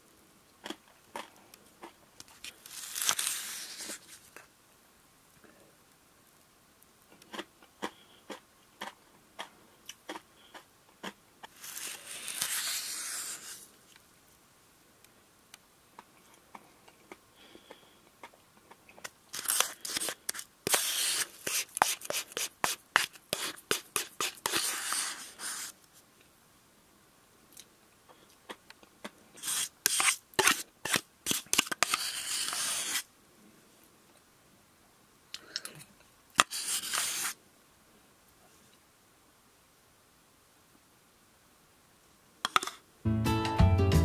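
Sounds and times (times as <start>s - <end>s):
spoon scraping shaved ice: 2.6s - 4.2s, 11.5s - 13.6s, 19.3s - 25.7s, 29.4s - 33.1s, 36.4s - 37.4s.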